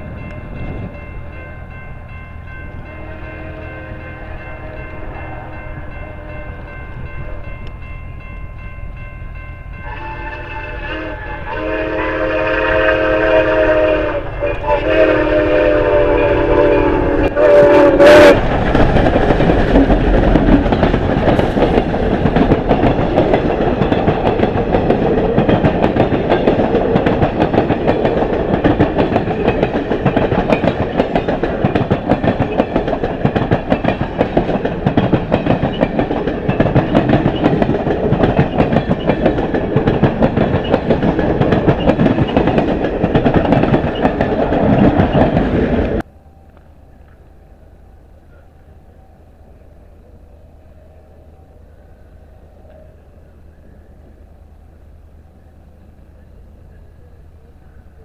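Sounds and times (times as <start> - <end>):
steam locomotive chime whistle: 0.0 - 18.4
wheels clattering over rail joints: 18.4 - 46.0.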